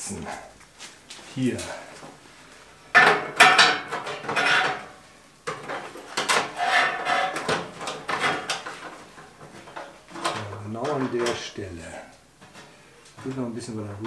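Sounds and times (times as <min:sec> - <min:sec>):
metal clattering and scraping: 0:02.9 - 0:14.0.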